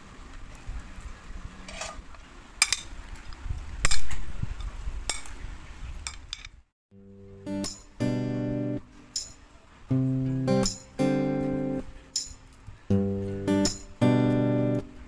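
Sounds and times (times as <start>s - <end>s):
metal spoons clinking in bowl: 9.2s - 9.4s, 12.1s - 12.6s.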